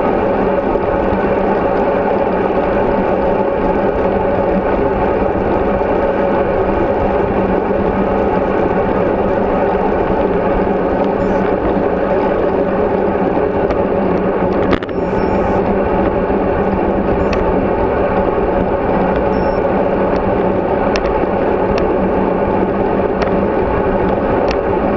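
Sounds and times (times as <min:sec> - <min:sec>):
bicycle road rumble: 0:00.0 - 0:24.9.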